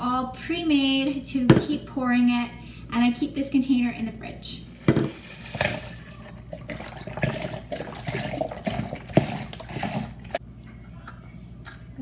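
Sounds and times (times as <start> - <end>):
juice pouring into a cup: 4.9 - 10.4.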